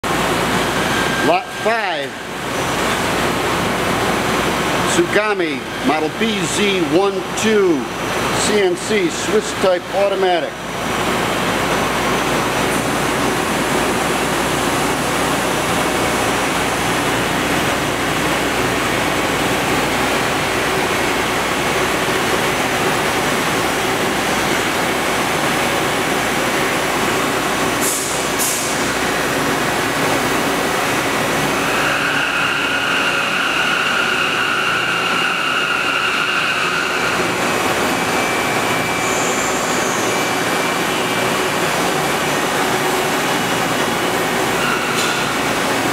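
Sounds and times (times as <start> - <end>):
high machine whine: 0.0 - 45.9
machinery hiss and rumble: 0.1 - 45.9.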